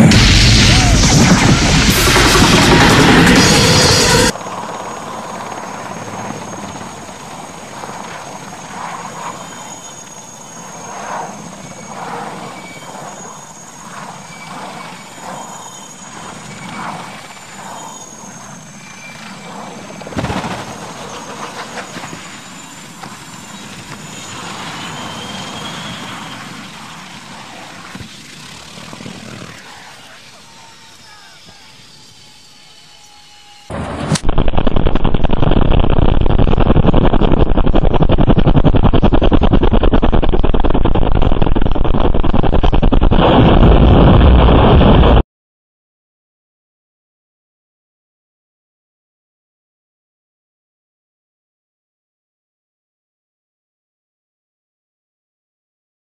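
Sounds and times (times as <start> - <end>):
helicopter rotor and engine: 0.0 - 44.1
faint high whine: 0.0 - 45.2.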